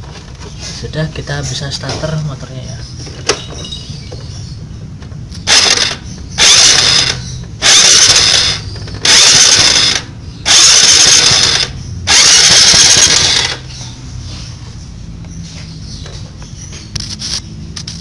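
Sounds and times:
motorcycle starter cranking engine: 0:05.4 - 0:13.8.

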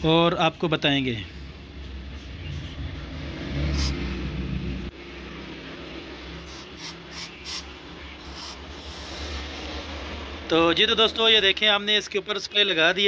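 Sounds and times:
aerosol can spraying: 0:03.7 - 0:04.0, 0:06.4 - 0:09.4.

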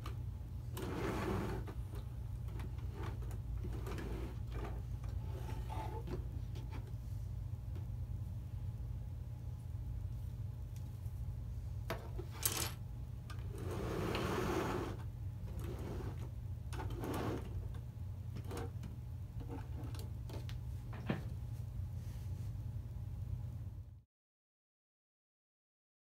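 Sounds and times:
steady low hum: 0:00.0 - 0:24.0
plastic scraping slide: 0:00.8 - 0:01.8, 0:02.8 - 0:06.8, 0:13.5 - 0:17.5.

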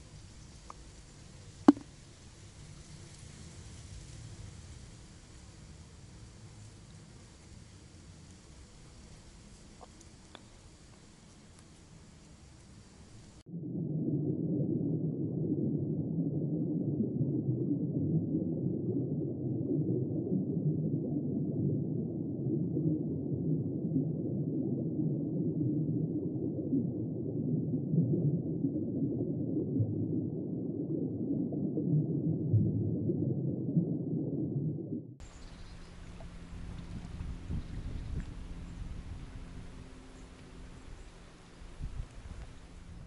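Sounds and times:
riverbank ambience: 0:00.0 - 0:03.2, 0:06.3 - 0:13.4, 0:35.2 - 0:43.0
muffled underwater rumble: 0:00.0 - 0:43.0.

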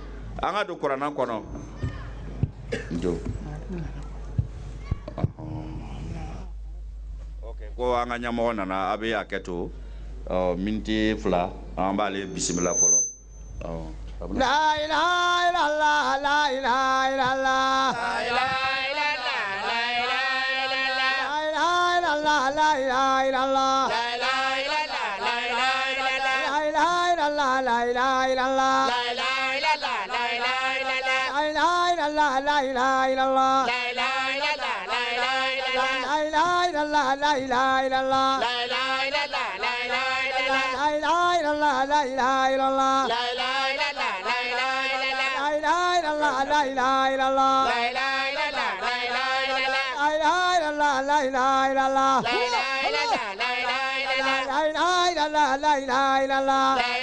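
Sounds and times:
person chanting melodic recitation: 0:14.3 - 0:57.0.

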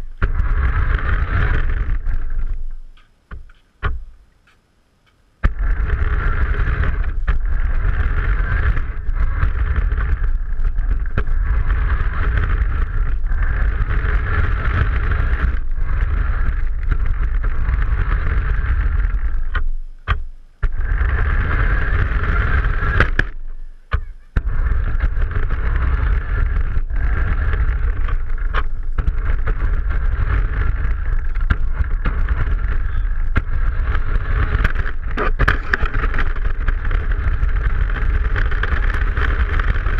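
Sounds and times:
remote-control car rumbling whir: 0:00.0 - 0:02.8, 0:05.4 - 0:39.9.

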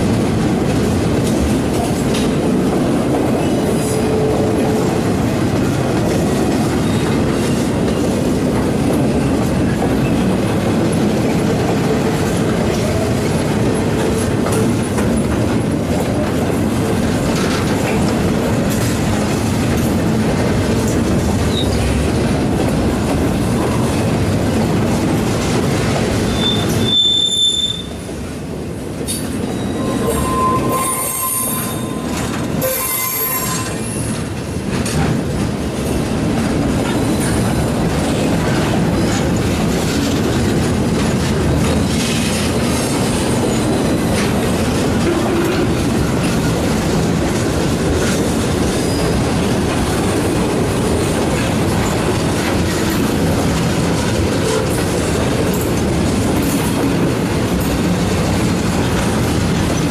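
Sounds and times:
clickety-clack of wheels: 0:00.0 - 0:59.9
freight train wheels rumbling: 0:00.0 - 0:59.9
wheel squeal: 0:26.3 - 0:28.0, 0:29.4 - 0:34.2.

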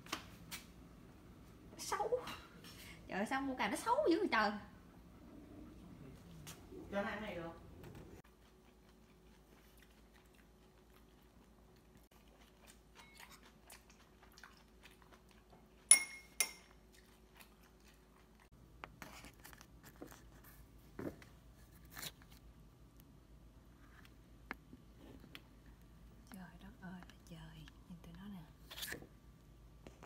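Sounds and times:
sharp ringing clinks: 0:15.9 - 0:16.7.

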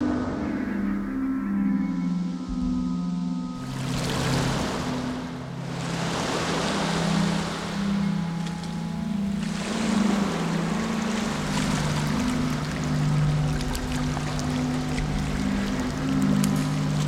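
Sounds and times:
ambient music low notes: 0:00.0 - 0:17.0
rushing wash of noise: 0:03.6 - 0:17.0.

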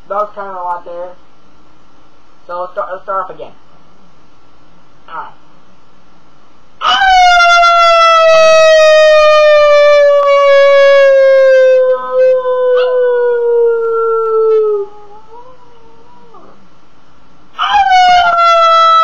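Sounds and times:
person howling: 0:06.8 - 0:16.6, 0:17.6 - 0:19.0
dog howling faintly: 0:06.8 - 0:16.7, 0:17.6 - 0:19.0.

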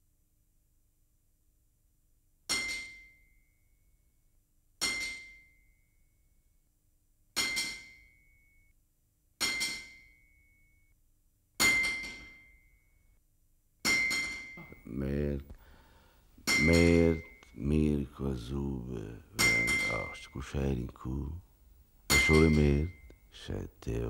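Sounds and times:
hammer striking metal: 0:02.5 - 0:03.3, 0:04.8 - 0:05.6, 0:07.4 - 0:08.2, 0:09.4 - 0:10.3, 0:11.6 - 0:12.7, 0:13.8 - 0:14.8, 0:16.4 - 0:17.5, 0:19.4 - 0:20.3, 0:22.1 - 0:23.1.

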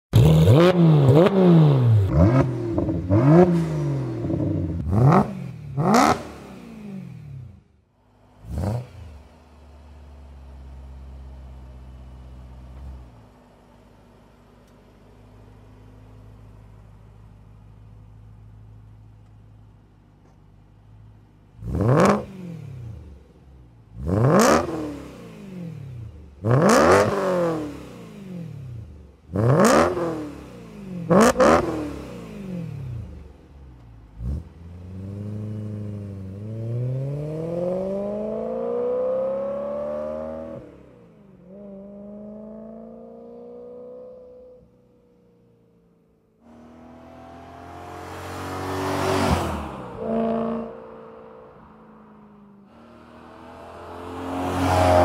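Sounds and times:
car engine revving hard: 0:00.2 - 0:07.2, 0:08.4 - 0:09.2, 0:21.6 - 0:23.0, 0:24.0 - 0:28.7, 0:29.3 - 0:33.2, 0:34.2 - 0:40.8, 0:46.5 - 0:51.7, 0:52.7 - 0:55.0
sports car engine revving: 0:00.2 - 0:10.8, 0:21.5 - 0:44.7, 0:46.4 - 0:55.0
car engine idling at low revs: 0:07.6 - 0:21.8, 0:32.4 - 0:36.4.

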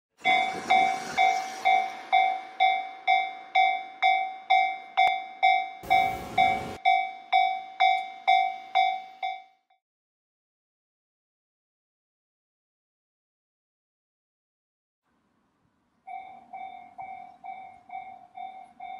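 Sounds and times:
level-crossing warning bell ringing: 0:00.2 - 0:09.6, 0:16.1 - 0:18.9.

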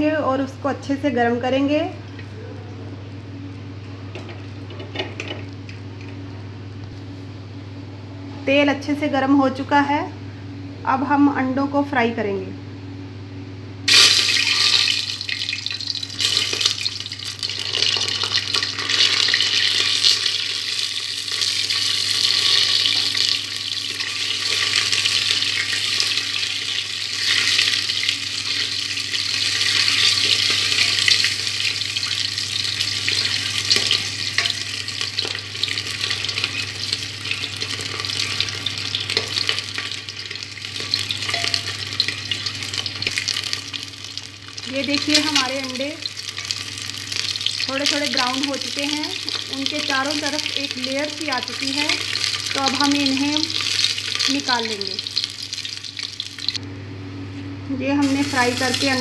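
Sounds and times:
eggs sizzling in hot oil: 0:13.9 - 0:56.6, 0:58.0 - 0:59.0
steel spoon stirring against pot: 0:33.2 - 0:43.1.

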